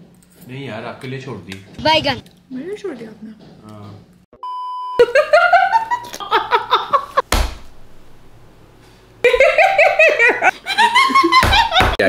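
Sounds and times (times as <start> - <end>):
loud laughter: 5.0 - 7.2, 9.3 - 12.0
sudden thump: 7.3 - 8.2.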